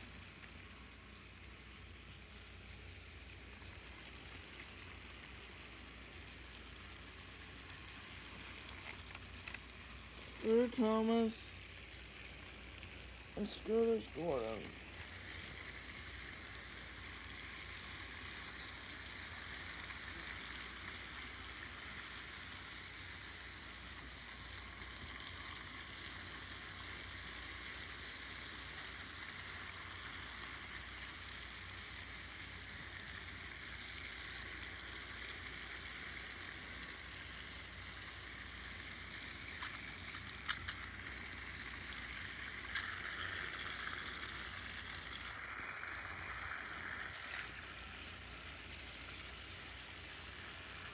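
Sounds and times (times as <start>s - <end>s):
toy train motors whirring: 0.0s - 50.9s.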